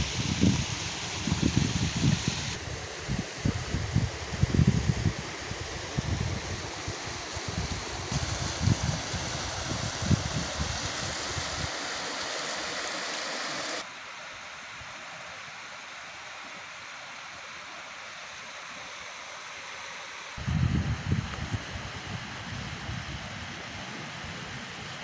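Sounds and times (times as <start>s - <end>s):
wind buffeting microphone: 0.0s - 11.8s, 20.4s - 24.9s
stream of running water: 0.0s - 25.0s.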